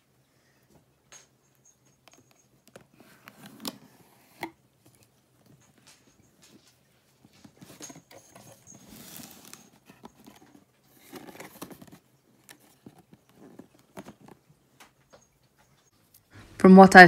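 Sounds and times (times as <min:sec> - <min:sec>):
cardboard box and paper rustling: 0:07.3 - 0:14.4.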